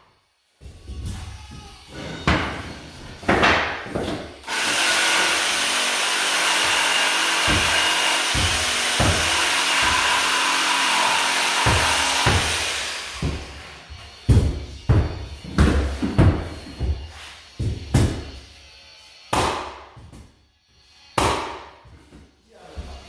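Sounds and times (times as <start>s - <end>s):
cordless drill running: 4.4s - 13.2s
mallet blows on flooring nailer: 4.5s - 13.7s.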